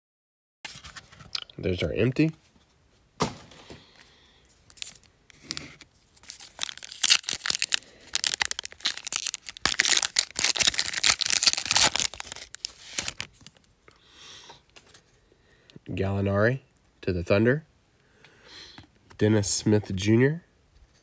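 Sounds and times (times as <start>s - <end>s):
foil crackling: 4.7s - 13.6s
foil wrapper crinkling and tearing: 4.7s - 13.7s.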